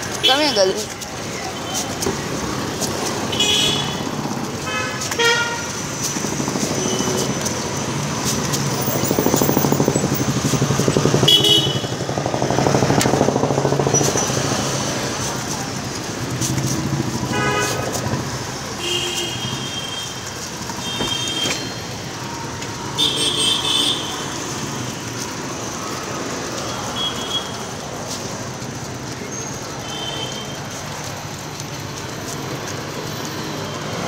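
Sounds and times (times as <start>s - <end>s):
traffic engine rumble: 0.0s - 34.0s
high horn toots: 4.7s - 5.8s, 11.2s - 11.9s, 17.3s - 18.0s.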